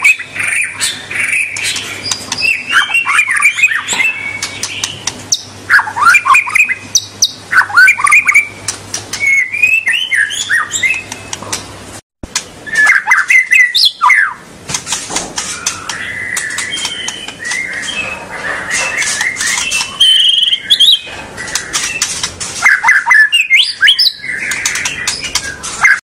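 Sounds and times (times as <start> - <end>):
bird singing whistled sweeps: 0.0 - 11.4, 12.6 - 14.4, 15.5 - 26.0
bird clicking chatter: 1.4 - 3.1, 3.7 - 5.5, 14.7 - 26.0.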